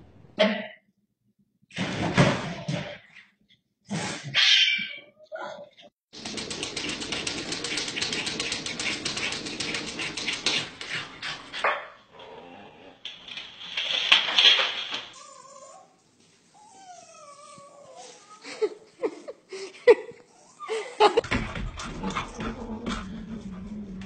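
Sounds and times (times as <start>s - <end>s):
rustling clatter: 6.1s - 11.6s, 13.1s - 15.2s.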